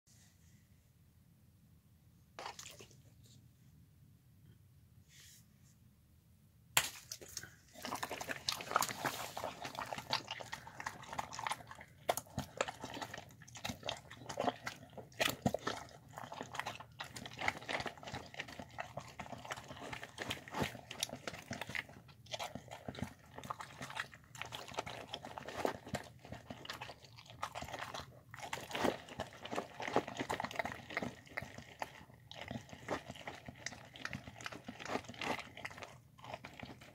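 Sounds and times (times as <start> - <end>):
dog chewing food: 7.7 - 36.9.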